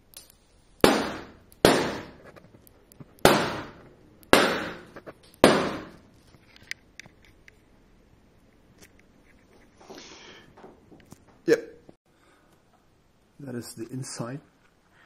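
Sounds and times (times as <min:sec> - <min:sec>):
balloons popping: 0:00.1 - 0:06.0.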